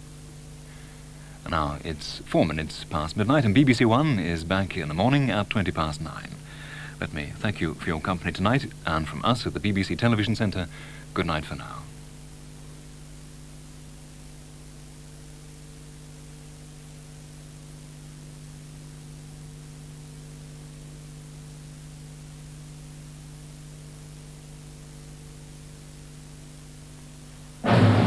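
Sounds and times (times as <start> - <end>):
steady hiss: 0.0 - 13.2
low electrical hum: 0.0 - 28.0.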